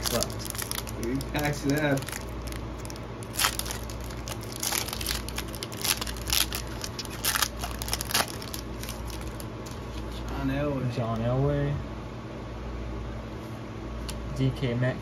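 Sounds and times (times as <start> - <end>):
foil wrapper crinkling and tearing: 0.0 - 11.3
steady low hum: 0.0 - 15.0.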